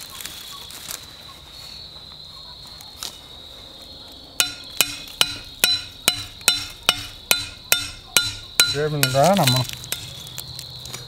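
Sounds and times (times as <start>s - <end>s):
high insect drone: 0.0s - 11.0s
hammer striking steel rod: 4.4s - 10.0s.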